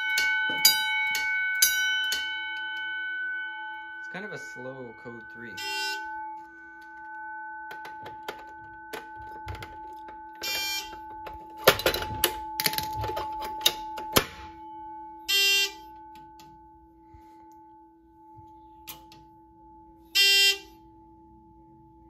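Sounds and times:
fire alarm horn blasts: 0:00.0 - 0:07.1, 0:10.4 - 0:11.2, 0:15.2 - 0:16.5, 0:20.0 - 0:21.0
faint electronic tone: 0:03.7 - 0:09.6.

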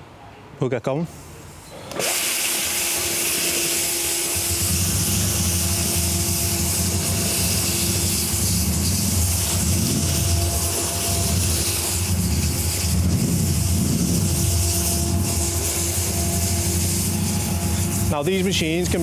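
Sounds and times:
floor sander hissing and humming: 0:01.9 - 0:19.0
deep rumble: 0:04.6 - 0:19.0.

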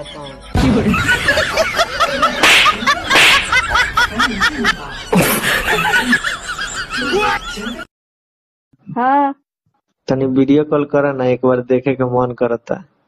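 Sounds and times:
person laughing hard: 0:00.6 - 0:07.8.

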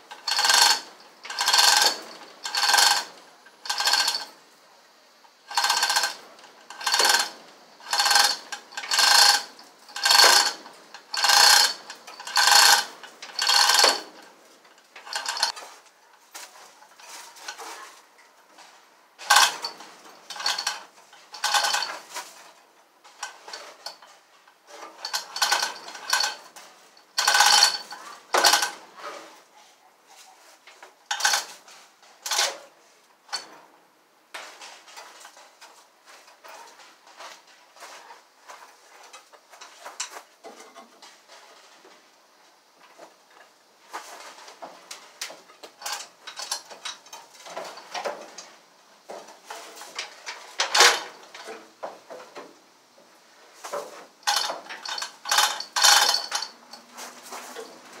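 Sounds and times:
hoist chain rattling: 0:00.1 - 0:04.4, 0:05.3 - 0:15.8, 0:19.2 - 0:28.8, 0:31.1 - 0:31.6, 0:32.2 - 0:32.6, 0:45.6 - 0:48.4, 0:49.4 - 0:51.7, 0:53.6 - 0:58.0.

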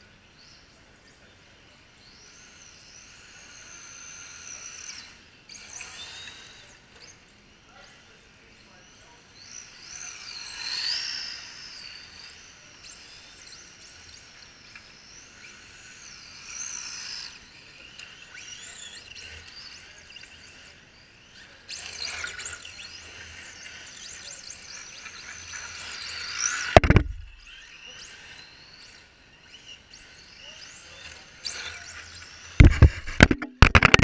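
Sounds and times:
rc car motor whine: 0:00.0 - 0:34.0
loud sharp knock: 0:26.8 - 0:27.3, 0:32.6 - 0:34.0.

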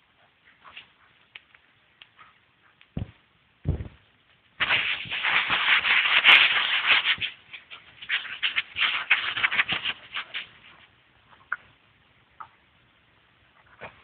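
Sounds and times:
low thump: 0:03.0 - 0:04.0.

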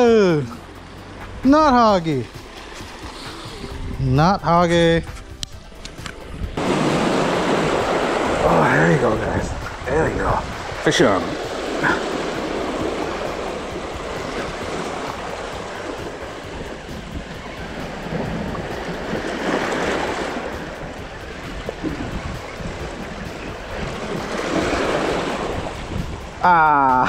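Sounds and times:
surf washing over rocks: 0:06.6 - 0:27.0.

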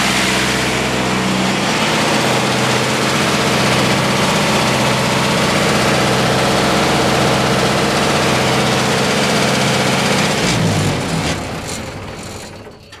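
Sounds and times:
diesel generator engine running: 0:00.0 - 0:13.0.

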